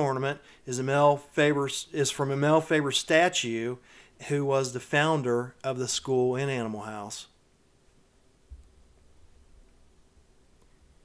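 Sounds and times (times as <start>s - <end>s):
soft low thump: 8.5s - 9.4s.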